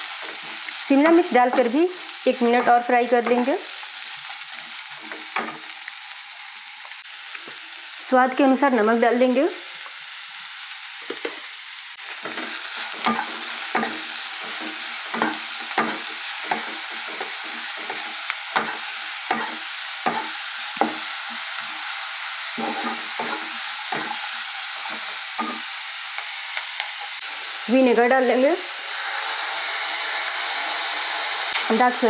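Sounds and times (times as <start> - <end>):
vegetables sizzling in oil: 0.0 - 32.0
spatula scraping and knocking pan: 12.2 - 21.8, 22.5 - 27.0.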